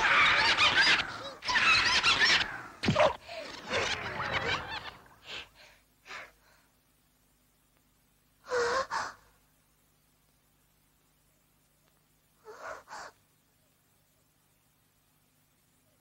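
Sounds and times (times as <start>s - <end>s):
cartoon lamb voice straining: 0.0s - 5.1s.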